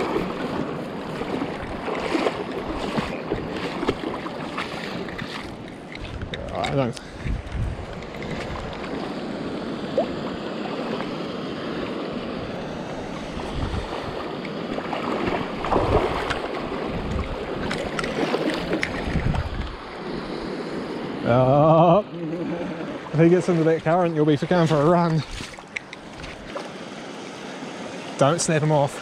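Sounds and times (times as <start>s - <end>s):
river water rushing: 0.0s - 6.2s, 8.0s - 29.0s
wind buffeting microphone: 0.0s - 21.4s.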